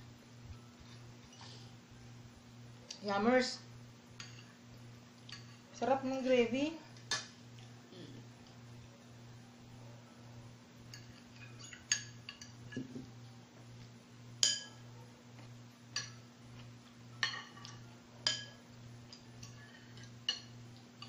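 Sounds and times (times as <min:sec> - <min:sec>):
faint low hum: 0:00.0 - 0:21.0
cutlery clinking on plates: 0:10.9 - 0:13.1, 0:14.4 - 0:14.8, 0:15.9 - 0:16.2, 0:17.2 - 0:21.0.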